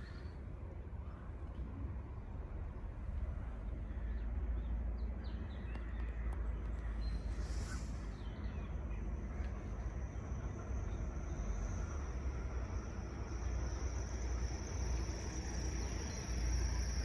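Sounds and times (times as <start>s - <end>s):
thin high whine: 9.7s - 17.0s.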